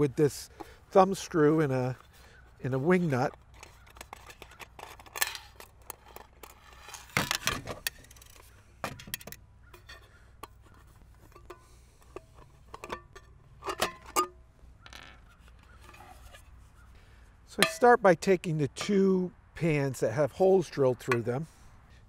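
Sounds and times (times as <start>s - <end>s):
metallic clicks and scrapes: 1.9s - 18.0s
aluminum tins clinking: 3.0s - 16.5s, 17.5s - 18.0s.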